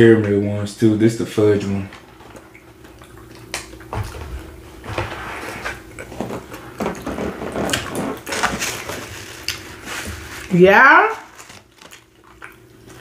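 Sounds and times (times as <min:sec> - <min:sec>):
chewing smacks and clicks: 0:11.8 - 0:13.0.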